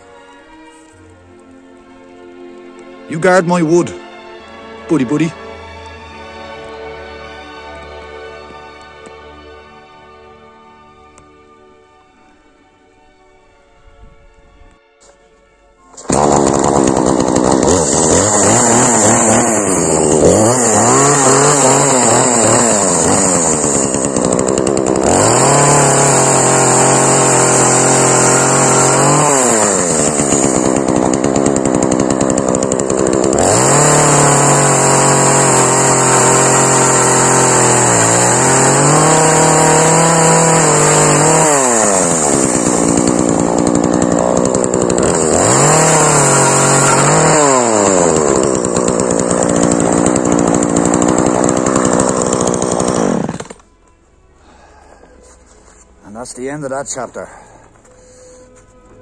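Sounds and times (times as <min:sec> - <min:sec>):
chainsaw cutting wood: 0:15.9 - 0:53.7.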